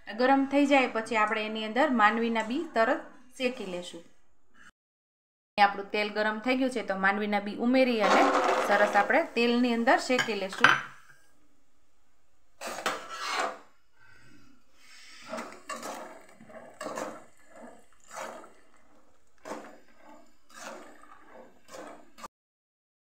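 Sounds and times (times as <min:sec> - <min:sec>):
spatula scraping a pan: 0:12.6 - 0:22.3.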